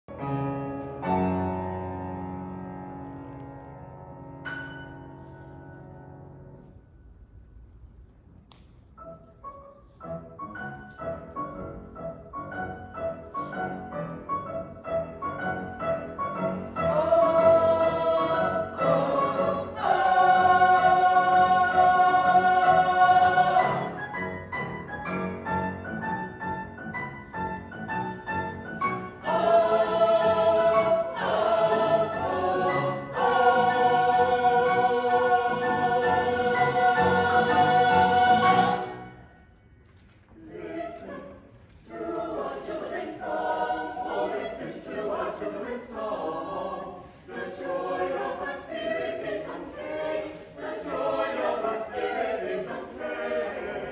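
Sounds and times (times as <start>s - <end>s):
piano: 0.0s - 53.9s
choir singing: 12.6s - 26.0s, 27.7s - 39.4s, 40.3s - 53.9s.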